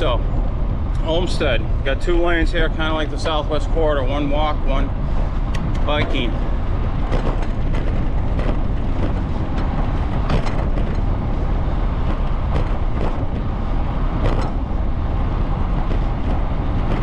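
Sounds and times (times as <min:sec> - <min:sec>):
bicycle tyres rolling on asphalt: 0:00.0 - 0:17.0
wind on microphone: 0:00.0 - 0:17.0
bike knocking over bumps: 0:07.0 - 0:17.0.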